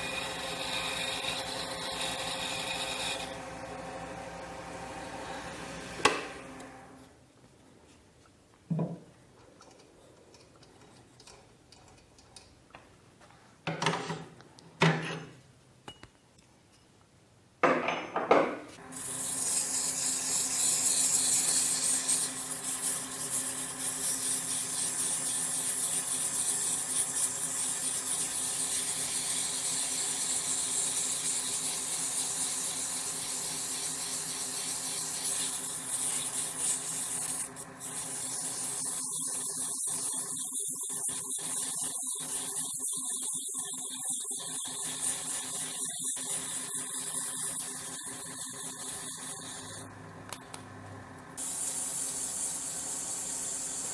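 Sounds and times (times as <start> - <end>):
sandpaper hissing on spinning wood: 0.0 - 3.4, 18.8 - 49.9, 51.4 - 53.9
lathe motor hum: 0.0 - 7.0.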